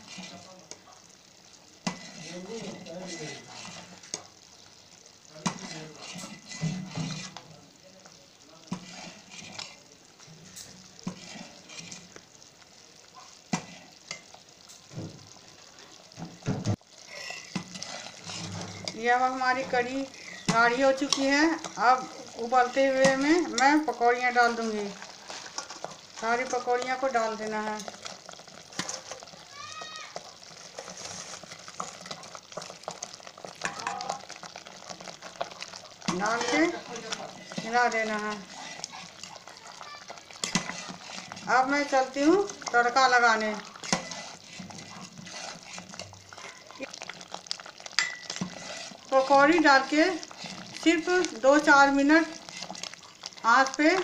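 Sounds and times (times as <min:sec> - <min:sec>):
curry bubbling: 0:00.0 - 0:54.0
spoon scraping through curry: 0:01.8 - 0:04.3, 0:05.5 - 0:07.4, 0:08.7 - 0:09.8, 0:10.5 - 0:12.2, 0:17.0 - 0:23.7, 0:24.5 - 0:26.7, 0:30.2 - 0:51.3, 0:52.2 - 0:53.4
fritters dropped into curry: 0:27.8 - 0:41.1.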